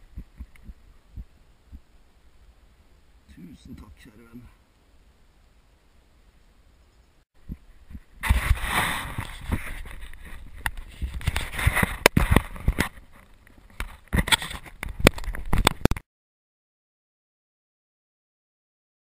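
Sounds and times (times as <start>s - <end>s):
rubbing on camera microphone: 7.5s - 15.9s.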